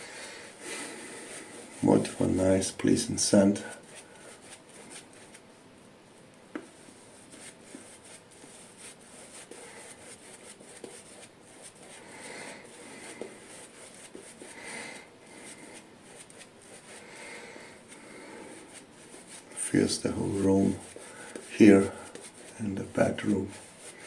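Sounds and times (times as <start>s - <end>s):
shaving brush swishing on face: 12.6s - 14.6s, 17.8s - 24.0s.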